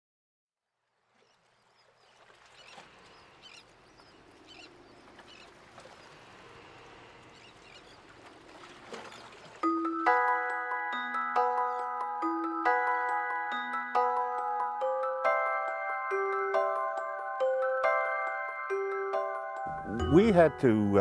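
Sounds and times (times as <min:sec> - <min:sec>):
soft outdoor ambience: 0:00.6 - 0:12.5
glockenspiel-like music notes: 0:09.6 - 0:21.0.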